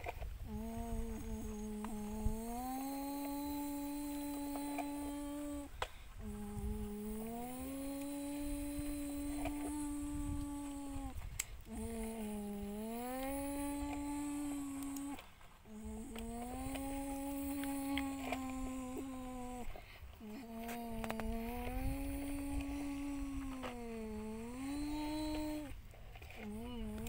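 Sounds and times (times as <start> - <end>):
person humming a low drone: 0.0 - 27.0.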